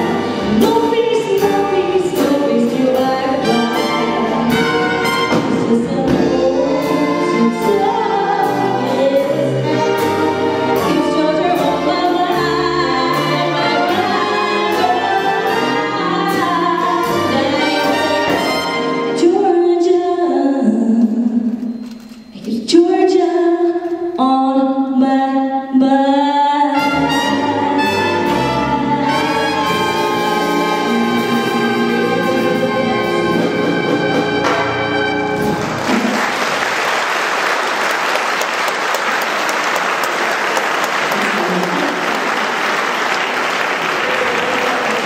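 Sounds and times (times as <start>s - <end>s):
swing big band playing: 0.0s - 19.5s, 26.8s - 36.3s
woman singing: 0.0s - 21.6s, 22.4s - 34.0s
audience applause: 35.5s - 45.0s.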